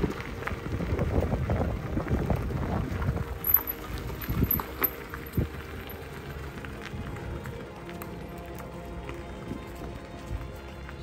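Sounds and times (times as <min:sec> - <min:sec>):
wind rumbling on microphone: 0:00.0 - 0:08.1.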